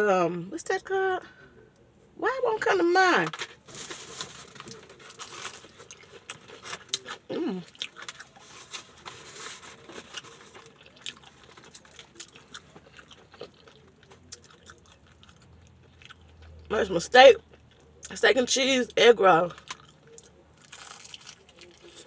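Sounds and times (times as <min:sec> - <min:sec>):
crunching fried chicken: 0:03.6 - 0:16.7, 0:19.5 - 0:22.0
chewing: 0:04.6 - 0:16.7, 0:19.5 - 0:22.0.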